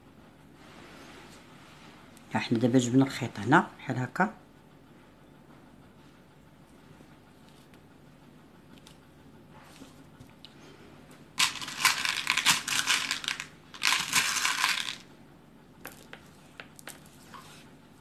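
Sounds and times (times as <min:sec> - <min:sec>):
beads rattling onto tabletop: 0:11.4 - 0:15.1.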